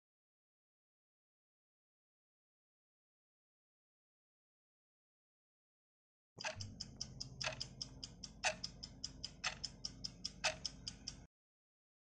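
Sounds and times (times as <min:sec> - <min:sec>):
clock ticking: 0:06.4 - 0:11.3
louder clock tick: 0:06.4 - 0:11.3.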